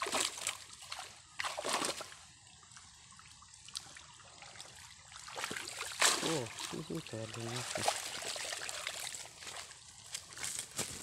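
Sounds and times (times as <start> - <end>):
broom splashing through water: 0.0 - 2.2, 4.5 - 9.7
water trickling and dripping: 0.0 - 10.7.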